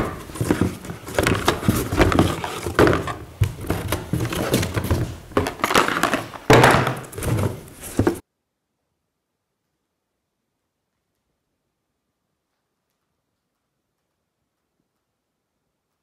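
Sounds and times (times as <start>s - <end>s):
cardboard box rustling: 0.0s - 8.2s
loud thunk on workbench: 6.5s - 7.2s.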